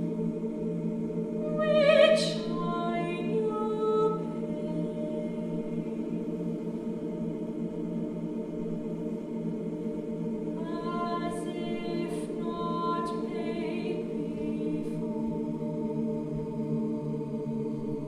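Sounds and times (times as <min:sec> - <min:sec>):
woman singing long notes: 0:01.4 - 0:05.8, 0:10.6 - 0:15.3.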